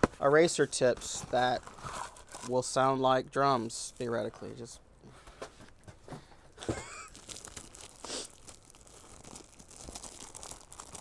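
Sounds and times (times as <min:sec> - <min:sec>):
packaging crinkling: 0:01.3 - 0:02.8, 0:06.6 - 0:11.0.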